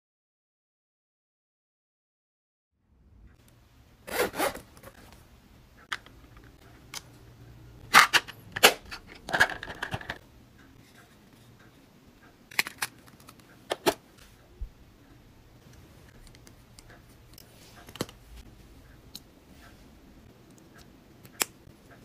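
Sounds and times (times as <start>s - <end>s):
zipper bursts: 4.0s - 4.7s
plastic cases clicking and knocking: 7.9s - 10.2s.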